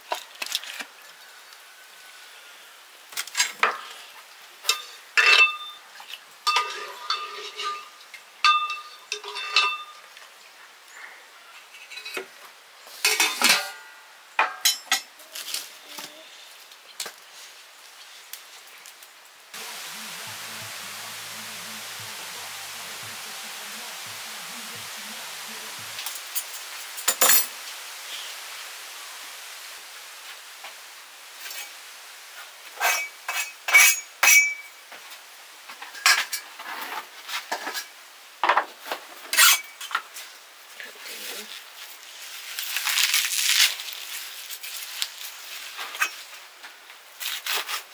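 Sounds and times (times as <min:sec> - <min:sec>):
steady hiss: 0:00.0 - 0:47.9
metal pots and utensils clattering: 0:04.6 - 0:05.8, 0:06.5 - 0:10.0, 0:13.0 - 0:15.1, 0:26.0 - 0:27.5, 0:32.8 - 0:34.7, 0:35.8 - 0:38.7, 0:39.3 - 0:40.0.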